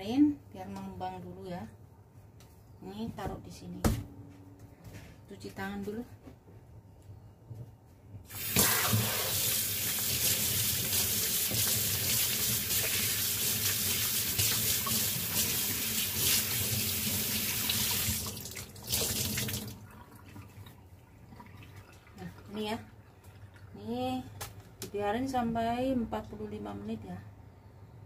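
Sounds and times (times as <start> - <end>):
tap water running into sink: 8.3 - 22.5.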